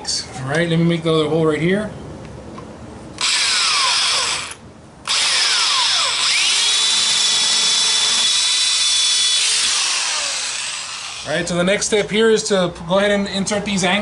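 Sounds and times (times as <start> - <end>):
power drill whining into wall: 3.2 - 11.3.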